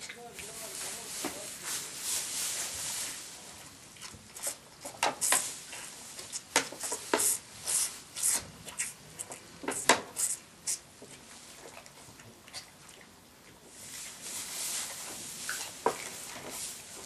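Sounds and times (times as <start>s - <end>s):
straw rustling: 0.0s - 8.3s, 13.7s - 17.0s
calf sucking from a bottle: 3.9s - 14.3s.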